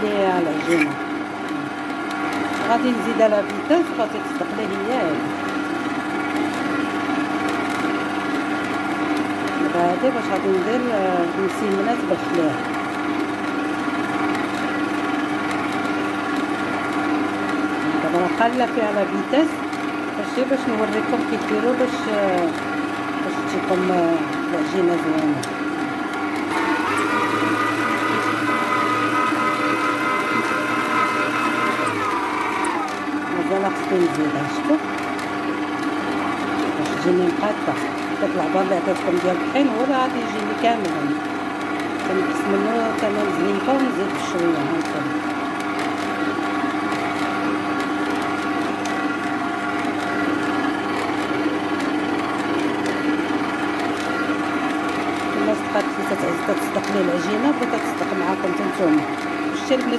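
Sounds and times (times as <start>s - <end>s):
stand mixer motor whining: 0.0s - 59.9s.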